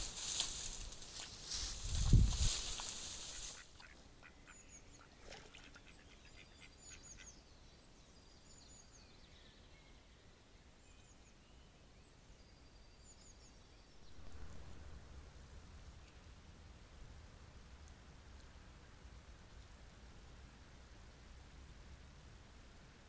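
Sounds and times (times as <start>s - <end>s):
faint duck quacks: 3.3s - 7.4s.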